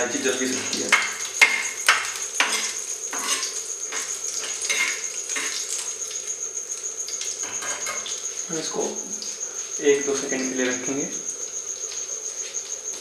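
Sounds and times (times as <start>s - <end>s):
spices sizzling in hot fat: 0.0s - 13.0s
spoon scraping metal pan: 0.5s - 5.8s, 7.4s - 8.1s.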